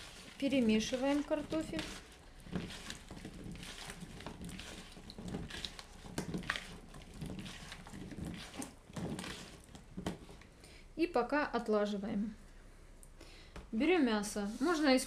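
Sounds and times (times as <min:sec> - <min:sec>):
potato chunks tossed in bowl: 0:00.0 - 0:10.3.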